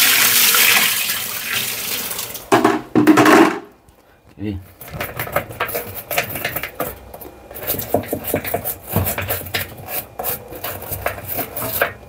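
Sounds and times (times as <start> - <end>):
wire brush scrubbing plastic: 4.9 - 12.0.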